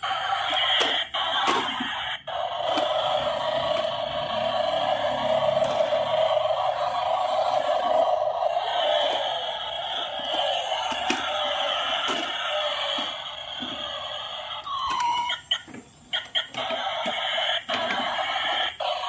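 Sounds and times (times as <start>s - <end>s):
toy truck electronic sound effects: 0.0s - 19.0s.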